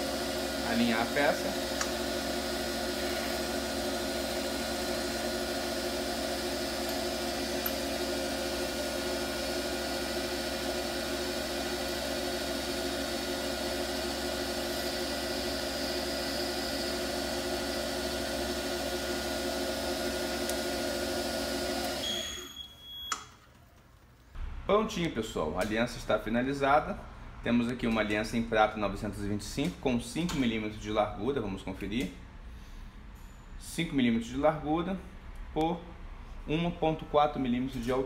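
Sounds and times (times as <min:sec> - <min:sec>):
lathe motor humming: 0:00.0 - 0:22.2.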